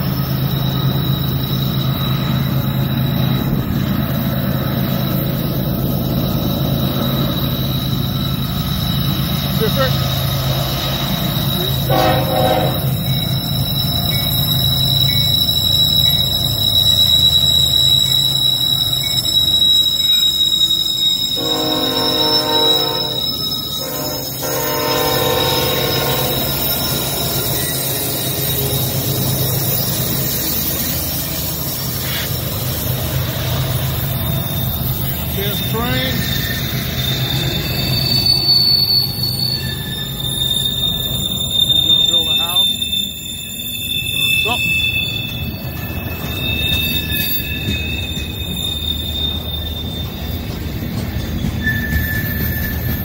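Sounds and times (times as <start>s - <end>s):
diesel locomotive engine hum: 0.0s - 53.0s
train wheel squeal: 0.0s - 53.0s
train horn blasts: 11.7s - 13.1s, 21.3s - 26.6s.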